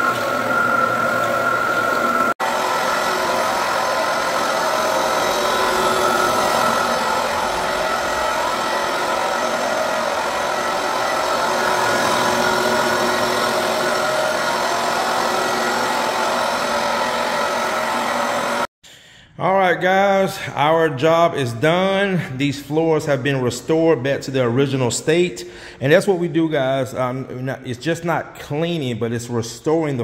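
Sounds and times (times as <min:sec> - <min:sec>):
floor buffer whirring: 0:00.0 - 0:18.7.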